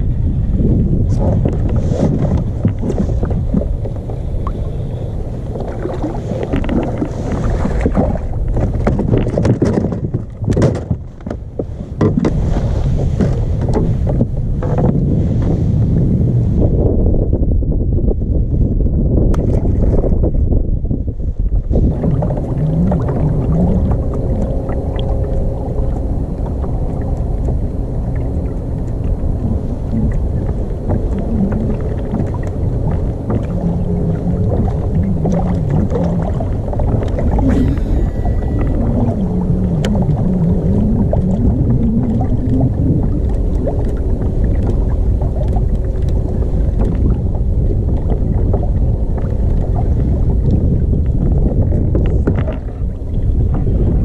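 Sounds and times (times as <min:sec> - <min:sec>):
low wavering hum: 0:00.0 - 0:54.0
wind buffeting microphone: 0:00.0 - 0:54.0.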